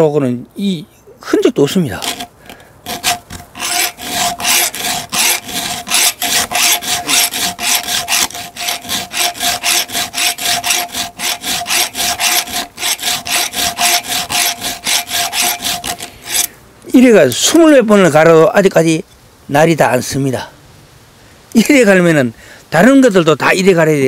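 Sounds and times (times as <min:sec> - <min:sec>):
file rasping on saw chain: 0:02.0 - 0:16.5.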